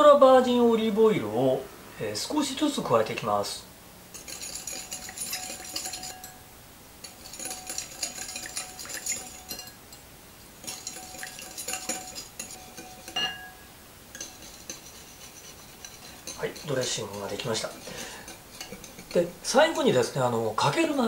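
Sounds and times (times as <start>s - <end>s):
glass clink: 4.1s - 6.4s, 7.0s - 10.0s, 10.6s - 14.8s
wire whisk beating glass bowl: 4.1s - 6.4s, 7.0s - 9.8s, 10.6s - 20.3s.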